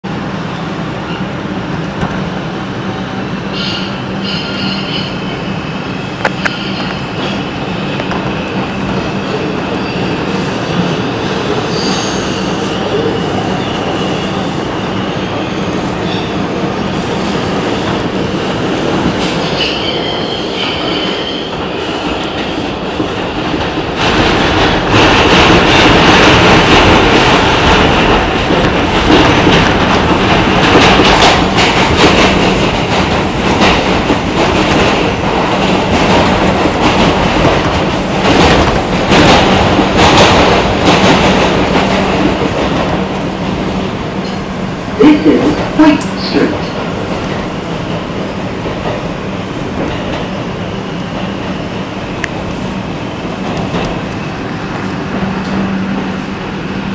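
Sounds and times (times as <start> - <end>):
subway train wheels rumbling: 0.0 - 56.9
high wheel squeal: 3.5 - 5.4
clicks and rattling over track: 22.2 - 44.4, 53.2 - 56.2.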